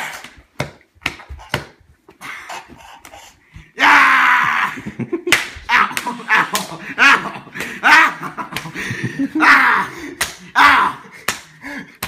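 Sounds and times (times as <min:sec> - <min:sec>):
hands and bodies smacking: 0:00.0 - 0:03.2, 0:05.2 - 0:06.8, 0:10.1 - 0:12.0
people grunting: 0:03.7 - 0:12.0.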